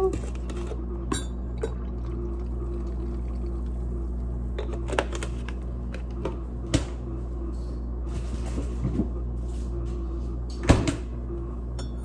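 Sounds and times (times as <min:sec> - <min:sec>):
steady low hum: 0:00.0 - 0:12.0
milk pouring into mug: 0:01.7 - 0:04.3.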